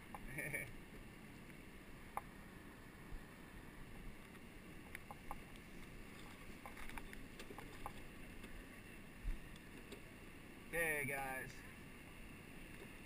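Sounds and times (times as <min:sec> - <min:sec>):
water lapping and dripping: 0:00.9 - 0:10.2.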